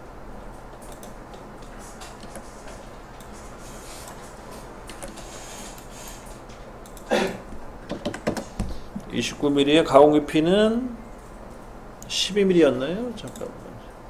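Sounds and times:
low mains hum: 0.0s - 14.0s
microphone hiss: 0.0s - 14.0s
computer mouse clicks: 0.7s - 3.4s, 4.0s - 6.2s, 6.8s - 7.1s.

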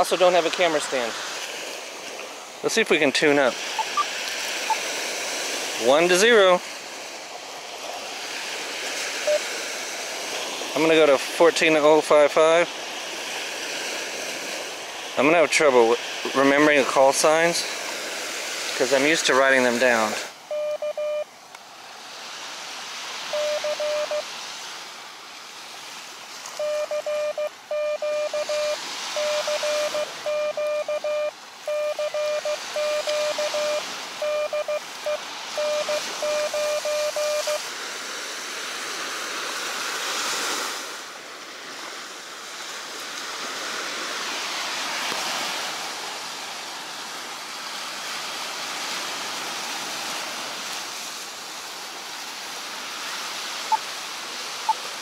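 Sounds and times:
surf washing on beach: 0.0s - 55.0s
morse code beeps: 3.8s - 4.1s, 20.5s - 21.3s, 23.3s - 24.2s, 26.6s - 37.6s.

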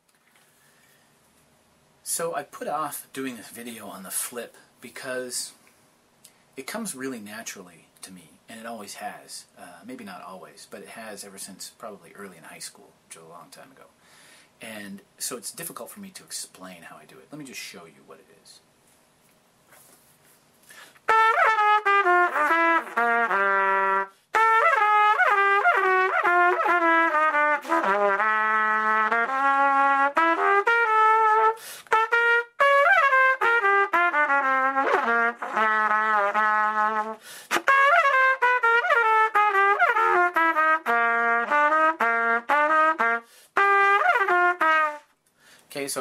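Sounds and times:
trumpeter breathing: 0.4s - 1.2s, 13.9s - 14.6s, 19.7s - 21.2s, 31.4s - 32.1s, 37.0s - 37.8s, 43.0s - 43.7s, 45.3s - 45.7s
solo jazz trumpet: 21.0s - 45.2s.

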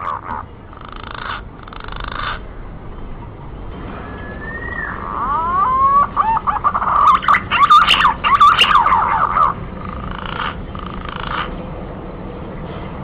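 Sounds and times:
pigeon whistling song: 3.9s - 9.6s.

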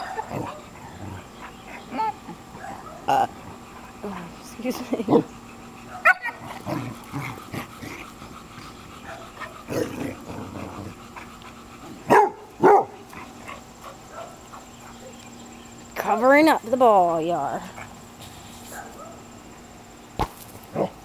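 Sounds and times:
dogs yipping: 0.0s - 4.3s, 5.2s - 6.6s, 8.2s - 9.7s, 11.0s - 15.4s, 18.7s - 19.3s
dog barking loudly: 5.9s - 6.4s, 12.0s - 13.1s, 14.1s - 14.4s.

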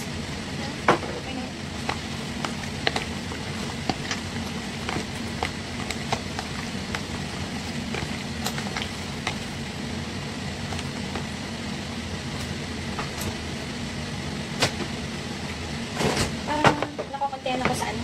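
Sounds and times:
appliance fan humming: 0.0s - 18.0s.

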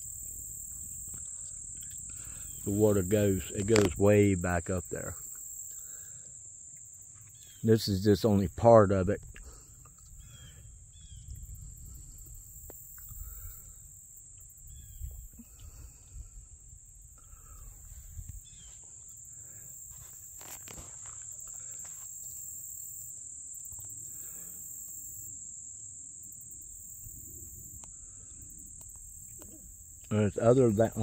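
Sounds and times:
insects chirring: 0.0s - 31.0s
wind buffeting microphone: 10.8s - 13.7s.

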